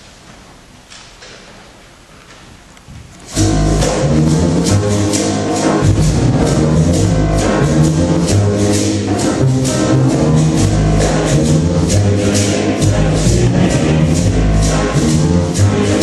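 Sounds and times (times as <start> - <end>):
hall ambience: 0.0 - 16.0
piano with quick steady beat: 3.3 - 16.0.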